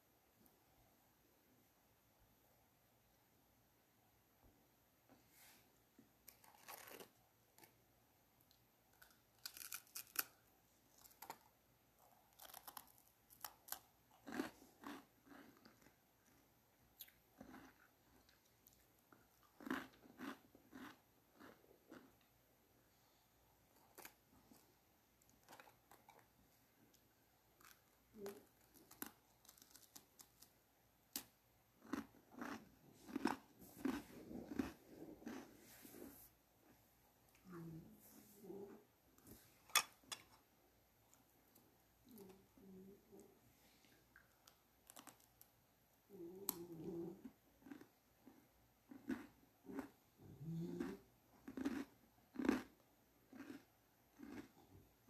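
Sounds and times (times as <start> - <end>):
crunching crisp snack: 6.2 - 7.8, 8.5 - 22.3, 23.7 - 26.3, 26.9 - 35.5, 44.2 - 45.5, 47.6 - 50.0, 50.7 - 54.7.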